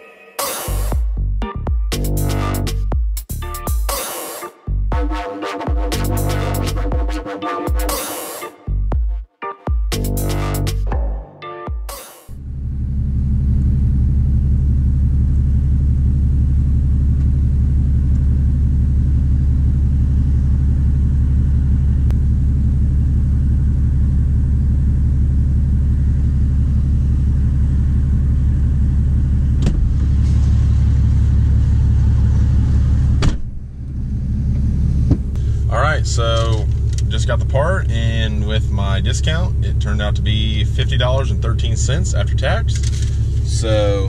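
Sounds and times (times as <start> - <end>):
diesel engine idling rumble: 12.4 - 44.0.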